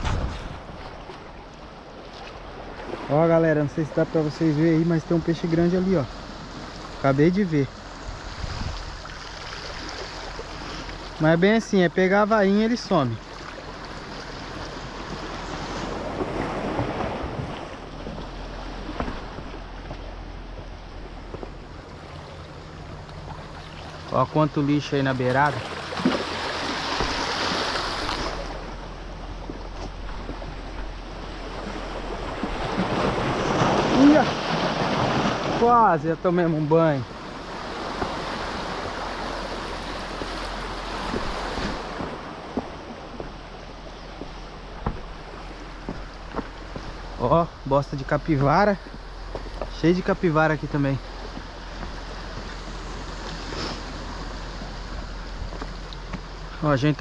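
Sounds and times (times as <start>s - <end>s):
wind buffeting microphone: 0.0s - 1.3s, 7.9s - 9.1s
waves washing against rocks: 2.9s - 19.8s, 21.6s - 43.8s
faint knocks: 44.2s - 45.2s.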